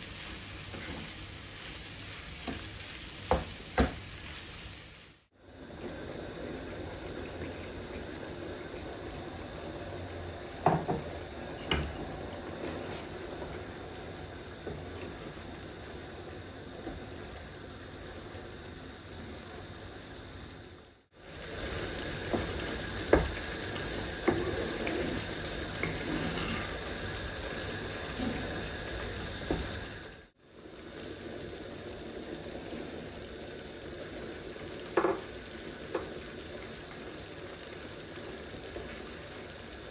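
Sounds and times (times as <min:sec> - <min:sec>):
mince bubbling and sizzling: 0:00.0 - 0:39.9
spoon knocking on pan: 0:35.0 - 0:35.3.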